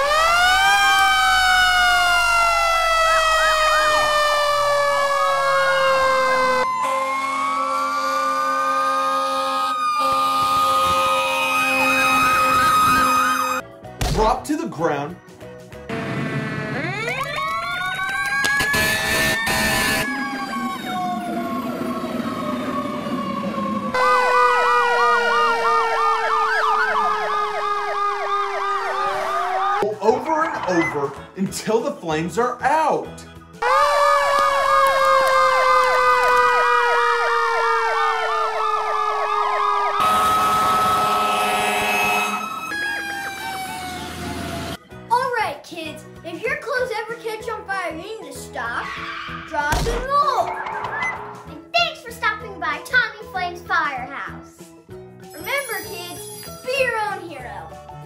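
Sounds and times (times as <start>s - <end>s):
siren wailing: 0.0s - 13.6s, 15.9s - 29.9s, 33.6s - 44.8s
siren yelping: 0.0s - 13.6s, 16.4s - 29.9s, 33.6s - 44.8s
steady siren tone: 0.0s - 13.6s, 15.9s - 29.8s, 33.6s - 44.8s.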